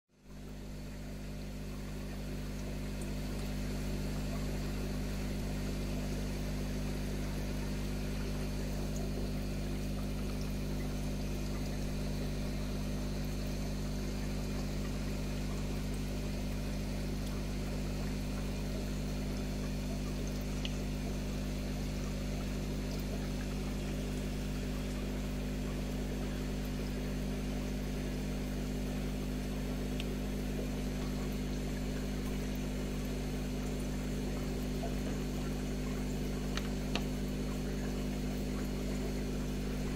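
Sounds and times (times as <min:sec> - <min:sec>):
aquarium pump humming: 0:00.2 - 0:39.9.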